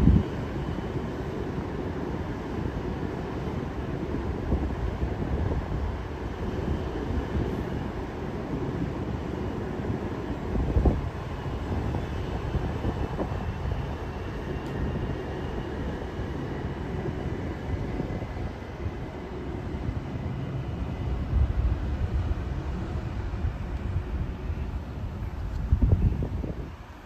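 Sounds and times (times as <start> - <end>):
electric train rumbling: 0.0 - 27.0
faint high whine: 5.7 - 27.0.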